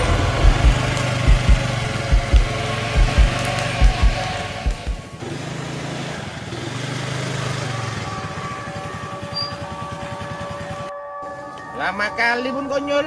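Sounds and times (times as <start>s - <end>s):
scooter engine running and idling: 0.0s - 10.9s.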